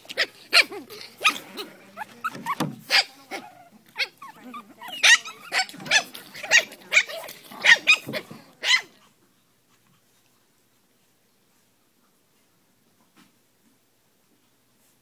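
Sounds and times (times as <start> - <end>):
puppies yapping: 0.0 - 8.8.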